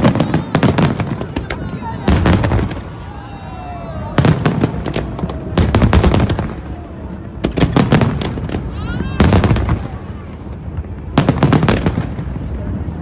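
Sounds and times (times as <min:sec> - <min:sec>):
fireworks crackling: 0:00.0 - 0:13.0.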